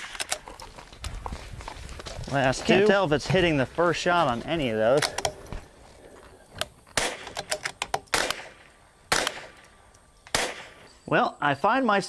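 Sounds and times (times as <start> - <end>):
rifle shots: 7.0 - 9.6, 10.3 - 10.9.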